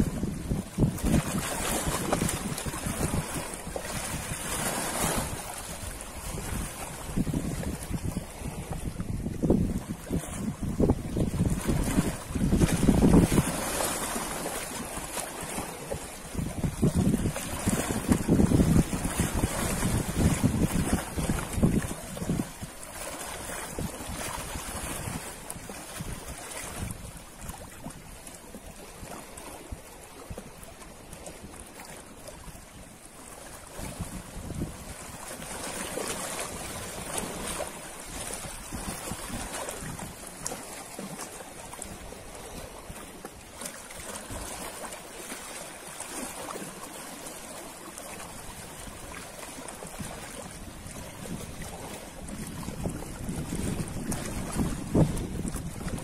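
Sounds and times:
ocean surf washing ashore: 0.0 - 27.6
wind: 0.0 - 56.0.

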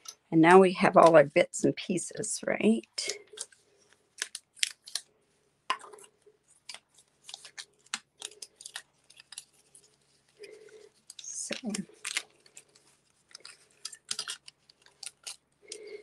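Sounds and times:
crisp paper rustles: 5.9 - 16.0.

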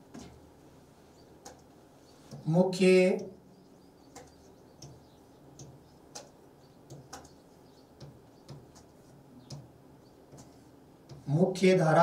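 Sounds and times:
marker pen tapping and scratching: 1.4 - 1.7, 4.1 - 9.7, 10.3 - 11.3.

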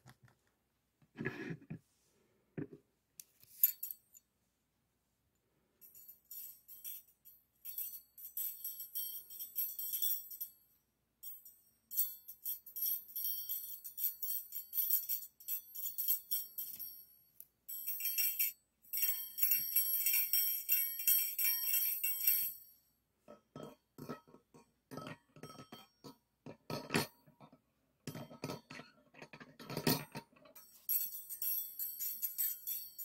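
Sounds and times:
metal beaters clinking: 23.3 - 27.4, 28.1 - 33.0.

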